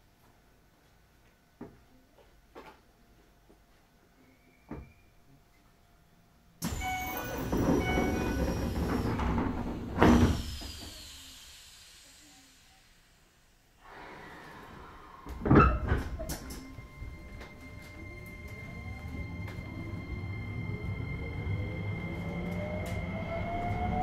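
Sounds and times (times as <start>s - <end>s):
train doors shutting thud: 6.6s - 11.1s
door chime beeping: 6.7s - 8.4s.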